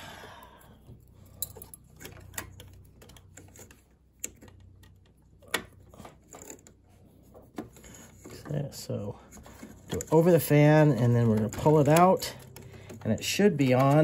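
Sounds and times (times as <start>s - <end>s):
metal forceps clicking and tapping: 1.2s - 6.8s, 9.3s - 14.0s.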